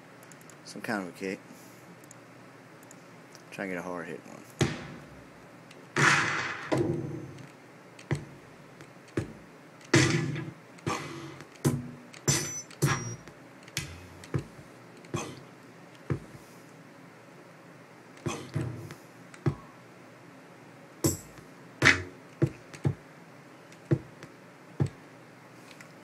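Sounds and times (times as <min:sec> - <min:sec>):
kick drum hits: 0:04.6 - 0:05.0.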